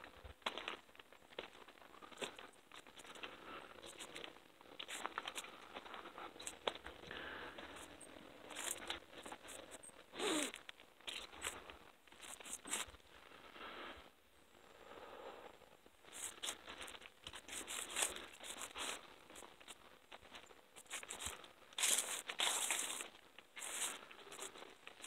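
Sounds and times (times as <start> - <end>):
leaves rustling: 16.1 - 25.0
footsteps crunching on dry leaves: 16.2 - 25.0.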